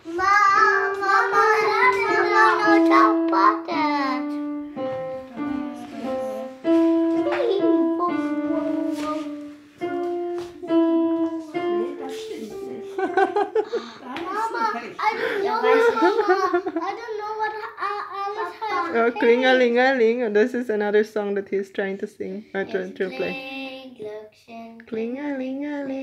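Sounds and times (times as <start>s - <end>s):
child singing: 0.0s - 4.6s, 5.2s - 6.6s, 7.2s - 13.0s, 14.3s - 19.3s, 22.6s - 26.0s
electronic keyboard melody: 0.0s - 13.6s.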